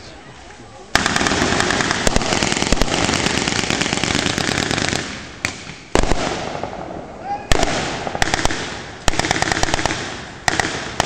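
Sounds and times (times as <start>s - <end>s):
automatic gunfire: 1.0s - 5.2s, 7.6s - 11.0s
single gunshots: 1.0s - 11.0s.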